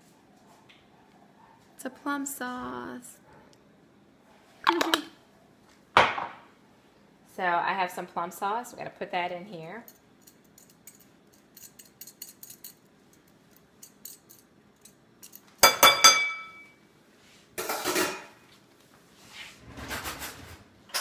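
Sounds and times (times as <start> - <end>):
ringing clinks: 15.6 - 16.8.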